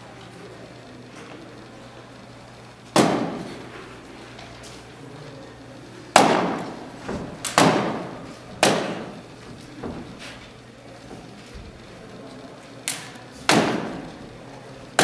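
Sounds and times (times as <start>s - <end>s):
sharp bangs ringing in a large hall: 2.9s - 3.8s, 6.1s - 10.2s, 12.8s - 14.3s.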